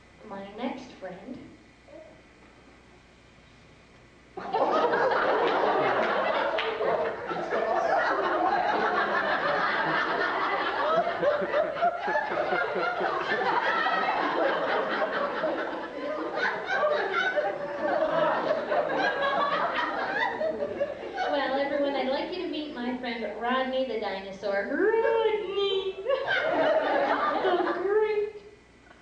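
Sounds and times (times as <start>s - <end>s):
laughter: 4.4s - 21.4s, 25.9s - 27.9s.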